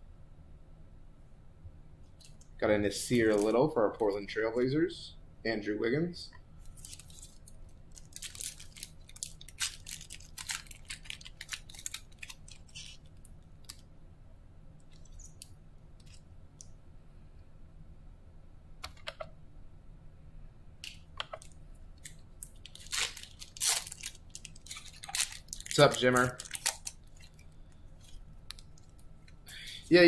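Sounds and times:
foil wrappers crinkling: 3.0 - 4.2, 6.6 - 13.8, 20.8 - 29.1.

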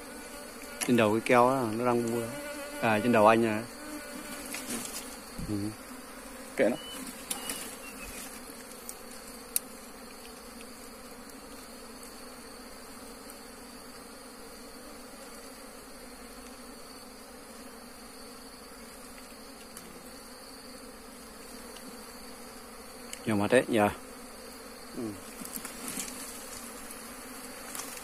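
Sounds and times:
swarm of bees buzzing: 0.0 - 28.0.

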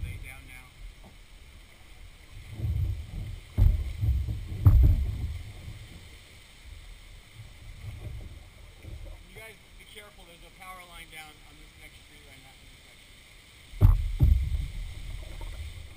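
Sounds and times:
water sounds: 0.0 - 15.9
paddle knocking against hull: 2.4 - 6.0, 13.8 - 15.6.

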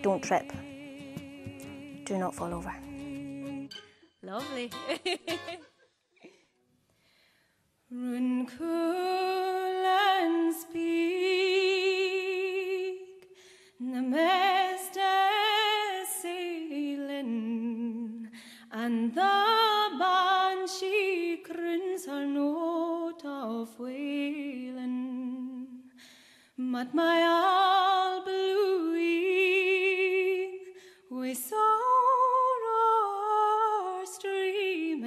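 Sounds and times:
woman singing a slow lament: 0.0 - 3.8, 7.9 - 13.2.

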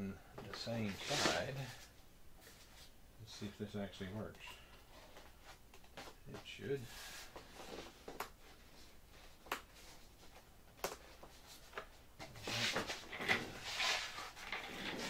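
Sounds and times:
foam wing rustling and scraping: 0.9 - 2.9, 12.3 - 15.0.

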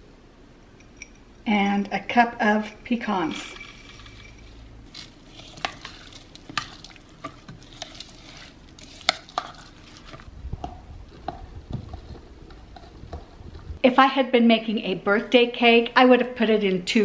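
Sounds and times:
spoon scraping thick frosting: 3.3 - 13.4.

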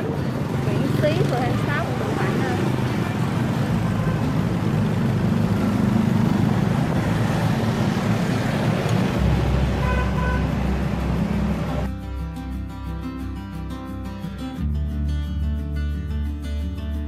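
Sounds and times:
street traffic: 0.0 - 11.9
acoustic guitar music: 0.0 - 17.0
vehicle horn toots: 9.7 - 10.6.

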